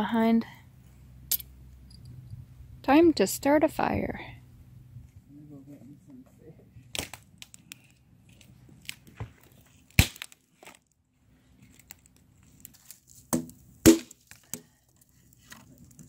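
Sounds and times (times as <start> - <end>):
wood cracking sharply: 6.9 - 7.8, 9.9 - 10.8, 12.6 - 14.7
sticks crunching underfoot: 6.9 - 10.9, 11.6 - 14.6.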